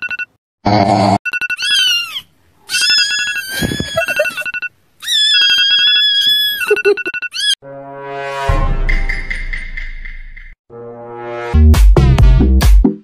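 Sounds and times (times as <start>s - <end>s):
phone alarm beeping: 0.0s - 0.3s, 1.3s - 1.8s, 4.0s - 4.7s, 5.4s - 7.6s
wavering kitten cries: 1.5s - 7.6s
kitten meowing: 1.6s - 4.4s, 5.0s - 6.7s.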